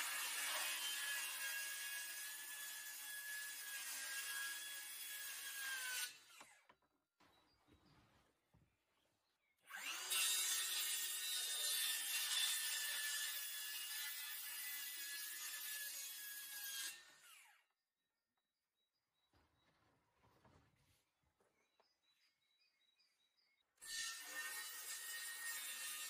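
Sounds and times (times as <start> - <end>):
circular saw cutting wood: 0.0 - 6.6, 9.7 - 17.7, 23.8 - 26.0.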